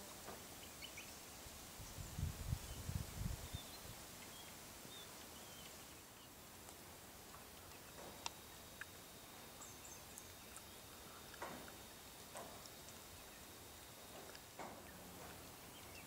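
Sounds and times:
faint steady hiss: 0:00.0 - 0:16.0
distant bird chirps: 0:07.6 - 0:16.0.

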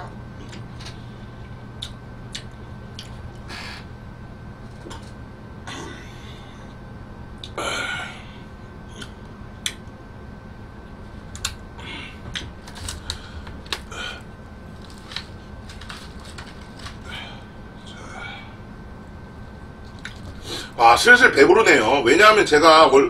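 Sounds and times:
paper crinkling: 0:12.6 - 0:13.9, 0:14.7 - 0:17.1
chewing crunchy crust: 0:14.7 - 0:17.4, 0:19.9 - 0:20.4.

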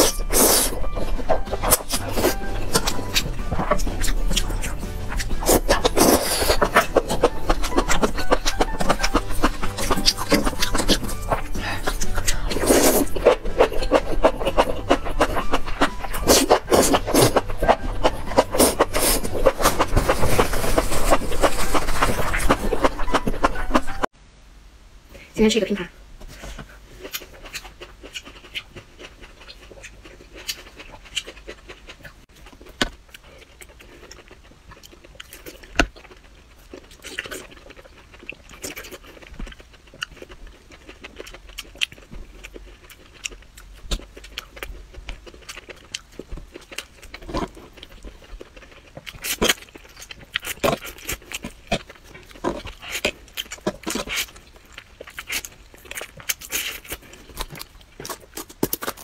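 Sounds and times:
chewing crunchy food: 0:00.0 - 0:24.1, 0:26.5 - 0:59.0
slurping noodles: 0:05.3 - 0:07.0.

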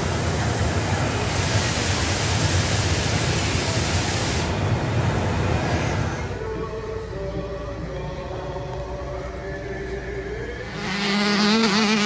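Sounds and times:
low steady hum: 0:04.6 - 0:12.0.

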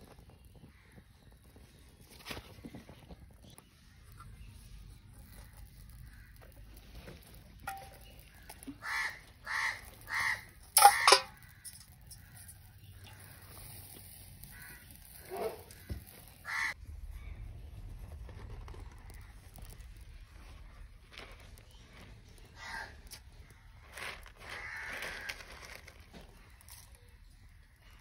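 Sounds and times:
bird cawing: 0:07.7 - 0:13.4, 0:14.4 - 0:17.4, 0:22.5 - 0:23.6, 0:24.4 - 0:25.9.

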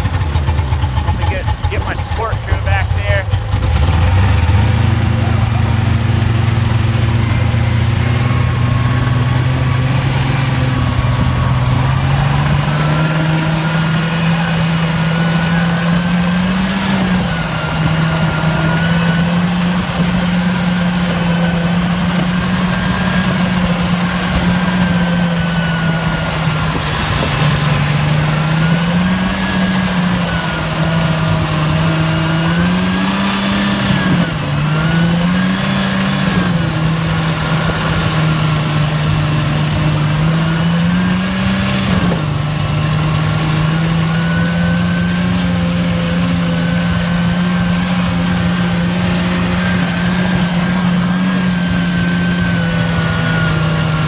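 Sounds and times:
small vehicle engine running: 0:00.0 - 0:54.0.

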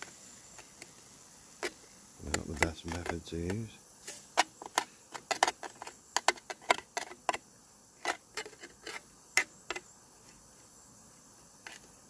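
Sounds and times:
campfire crackling and popping: 0:01.6 - 0:03.7.

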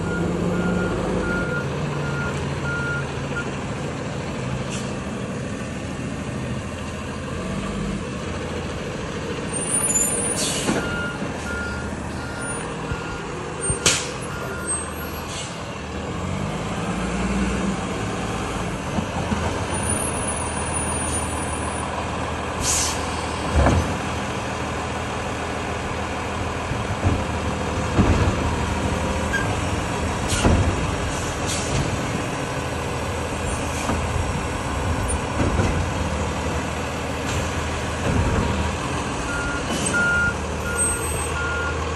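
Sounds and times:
truck engine running: 0:00.0 - 0:41.9
reversing alarm beeping: 0:00.1 - 0:03.5, 0:10.8 - 0:15.2, 0:39.3 - 0:41.8
air brake hisses: 0:10.2 - 0:10.8, 0:15.1 - 0:15.6, 0:22.6 - 0:23.1, 0:31.1 - 0:31.8.

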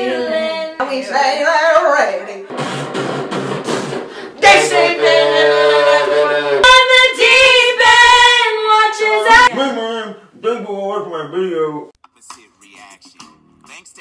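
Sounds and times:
breathy noise: 0:02.5 - 0:04.4.

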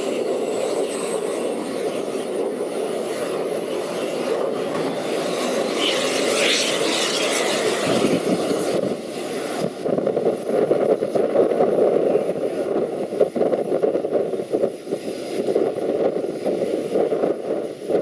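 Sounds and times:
jet engines idling: 0:00.0 - 0:18.0.

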